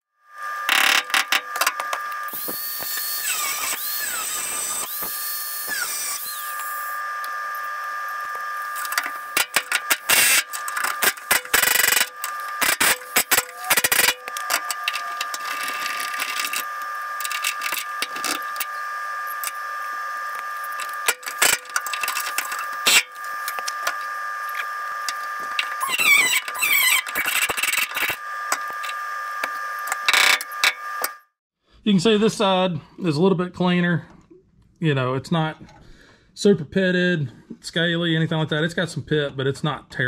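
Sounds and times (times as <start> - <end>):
power tool whining: 0.2 - 31.4
steady hum: 0.4 - 31.2.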